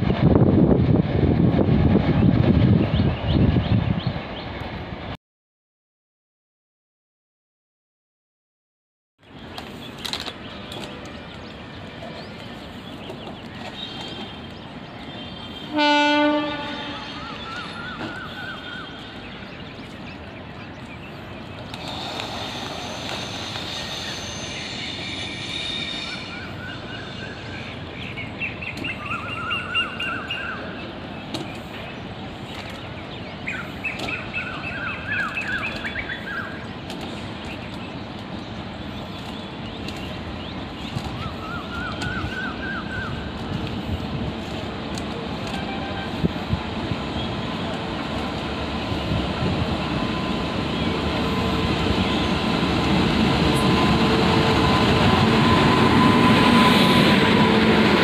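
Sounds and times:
train rumble: 0:00.0 - 0:05.2, 0:09.2 - 0:58.0
locomotive horn blast: 0:15.4 - 0:17.4, 0:45.4 - 0:46.5
long high-pitched horn tone: 0:15.4 - 0:17.4, 0:45.4 - 0:46.4.

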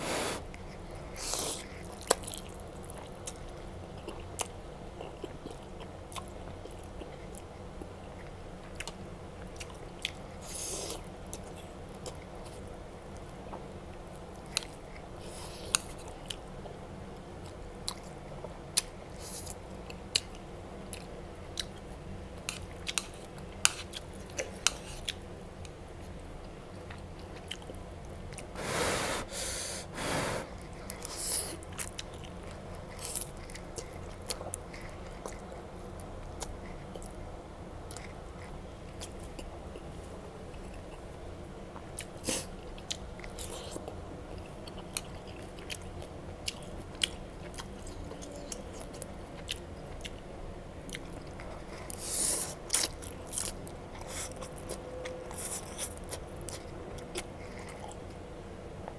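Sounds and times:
person chewing with mouth clicks: 0:00.3 - 0:12.7, 0:26.7 - 0:37.2, 0:41.8 - 0:50.2, 0:50.9 - 0:58.2
slurping noodles: 0:28.6 - 0:30.6.

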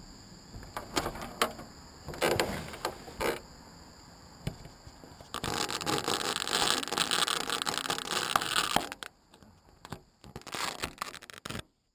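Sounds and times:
fingers scraping on camera: 0:05.2 - 0:09.1, 0:09.8 - 0:11.6.

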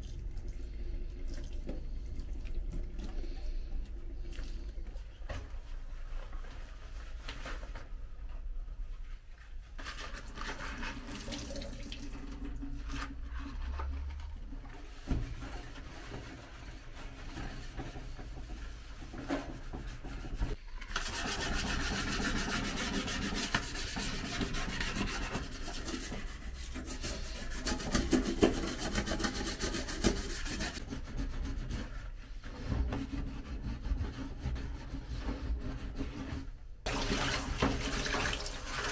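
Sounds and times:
rubbing and scrubbing: 0:08.8 - 0:11.4, 0:12.4 - 0:38.9
tap water running into sink: 0:10.9 - 0:12.7, 0:36.9 - 0:38.9.

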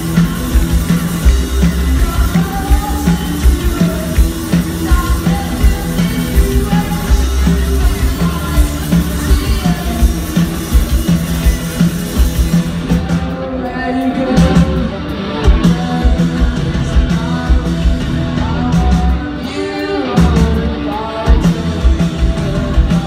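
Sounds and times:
live rock band playing: 0:00.0 - 0:23.0
woman singing: 0:00.2 - 0:10.4.

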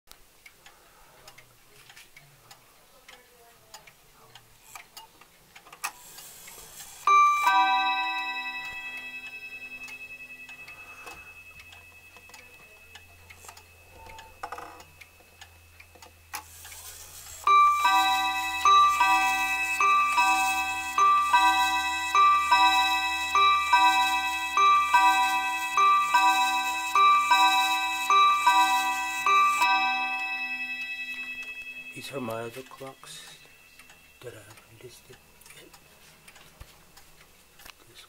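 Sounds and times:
wall clock ticking: 0:00.1 - 0:38.0
clock chime rod ringing: 0:06.8 - 0:36.5.

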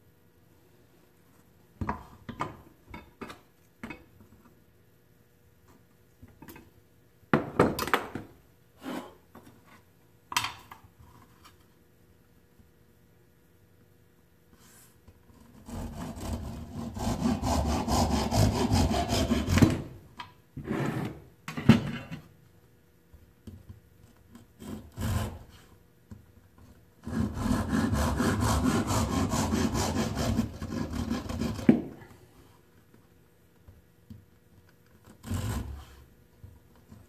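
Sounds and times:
hand saw cutting wood: 0:15.6 - 0:20.0, 0:24.5 - 0:25.7, 0:27.0 - 0:31.9, 0:35.0 - 0:36.0.

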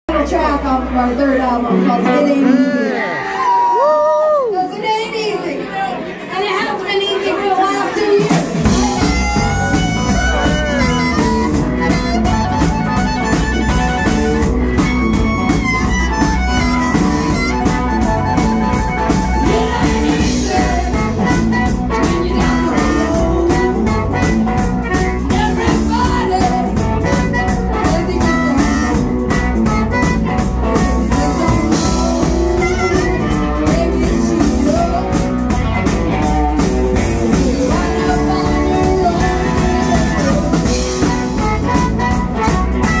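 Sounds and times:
live blues band playing: 0:00.1 - 0:04.4, 0:06.9 - 0:43.0
amplified harmonica: 0:08.7 - 0:43.0
woman singing: 0:19.4 - 0:29.1, 0:30.7 - 0:35.6, 0:37.2 - 0:41.9.

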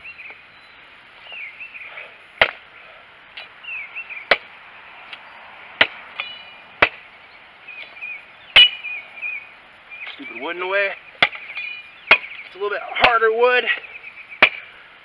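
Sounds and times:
machete chopping branch: 0:02.4 - 0:02.7, 0:04.3 - 0:04.5, 0:05.8 - 0:07.1, 0:11.2 - 0:13.3, 0:14.4 - 0:14.7.

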